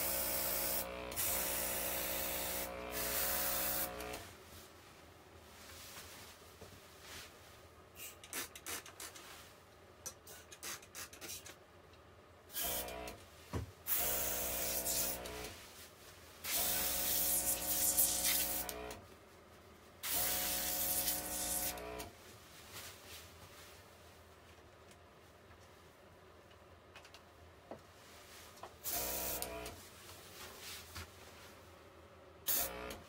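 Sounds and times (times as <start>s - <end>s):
airbrush spraying air hiss: 0.0s - 4.0s, 14.0s - 15.2s, 16.5s - 18.7s, 20.0s - 21.8s
small compressor humming: 0.0s - 4.3s, 28.8s - 29.8s, 32.5s - 33.0s.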